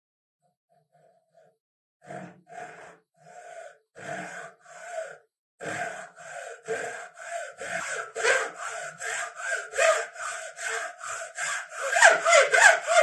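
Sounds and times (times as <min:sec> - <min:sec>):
hacksaw cutting wood: 0:05.7 - 0:13.0.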